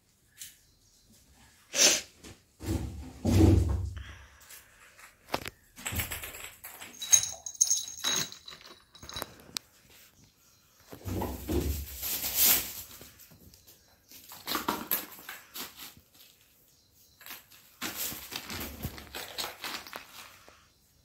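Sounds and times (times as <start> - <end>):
bells jingling: 6.8 - 9.6.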